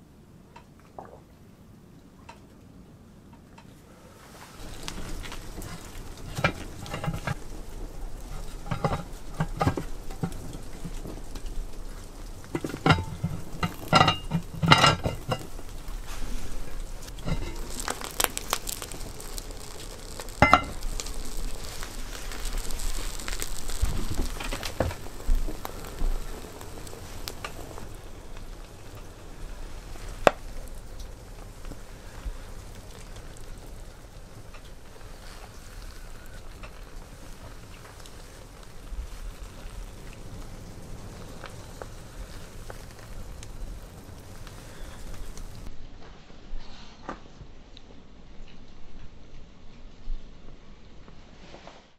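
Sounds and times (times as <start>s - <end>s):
stew sizzling: 4.1s - 45.7s.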